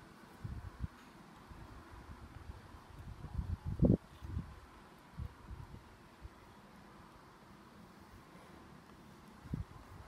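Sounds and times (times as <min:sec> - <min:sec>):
wind buffeting microphone: 0:00.4 - 0:01.0, 0:01.6 - 0:06.0, 0:09.4 - 0:10.0.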